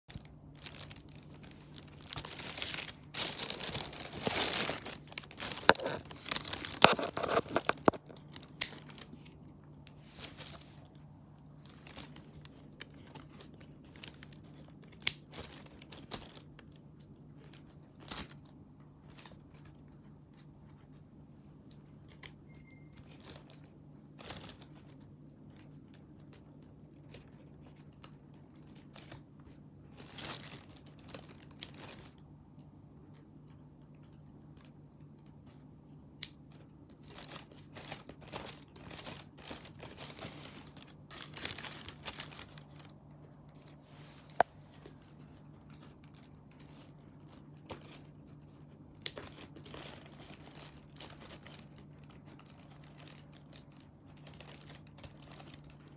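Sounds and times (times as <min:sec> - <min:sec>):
faint steady hum: 0:00.0 - 0:55.9
plastic bags crinkling: 0:00.1 - 0:11.0, 0:11.6 - 0:20.0, 0:27.0 - 0:32.2, 0:36.6 - 0:55.9.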